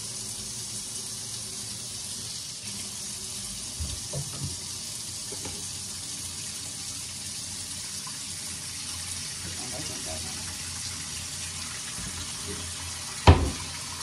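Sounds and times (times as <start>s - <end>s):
tap running into sink: 3.7s - 4.6s, 5.2s - 5.7s, 13.2s - 13.8s.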